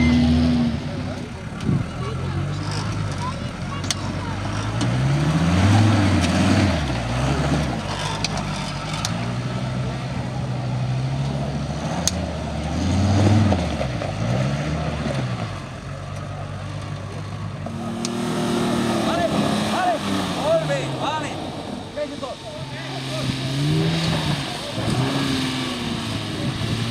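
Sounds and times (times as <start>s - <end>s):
off-road engine revving: 0.0s - 26.9s.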